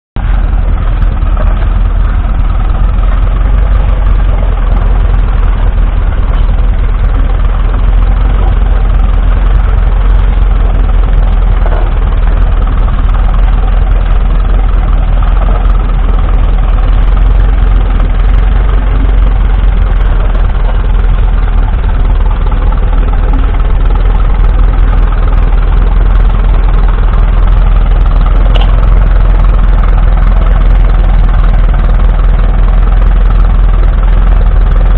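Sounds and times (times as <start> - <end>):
tractor engine running: 0.2 - 34.9.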